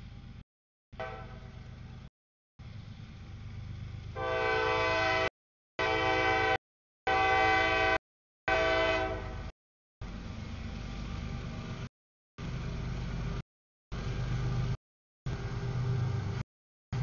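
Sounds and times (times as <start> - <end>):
locomotive engine rumble: 0.0 - 0.4, 1.0 - 17.0
locomotive air horn blasts: 1.0 - 1.6, 4.2 - 9.5.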